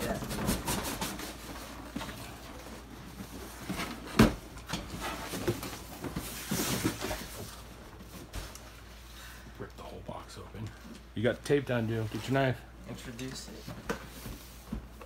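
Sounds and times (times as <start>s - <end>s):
cardboard rustling and scraping: 0.0s - 9.0s.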